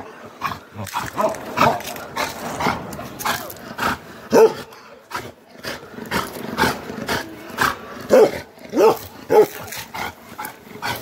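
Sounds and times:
dog barking: 0:04.3 - 0:04.7, 0:08.1 - 0:09.6.

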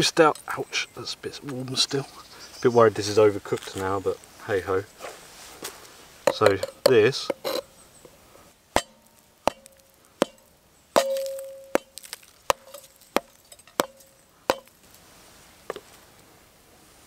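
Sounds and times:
short metallic ring: 0:11.0 - 0:11.8.

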